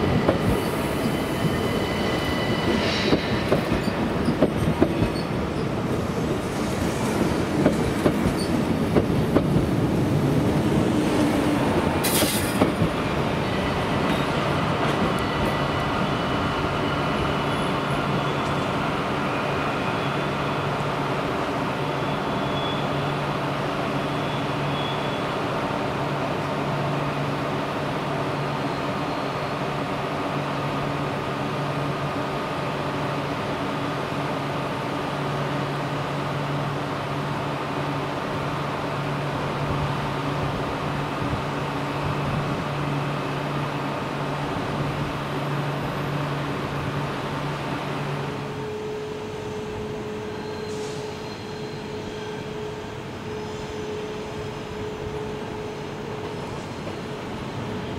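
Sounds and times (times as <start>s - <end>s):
train moving past humming: 0.0s - 57.9s.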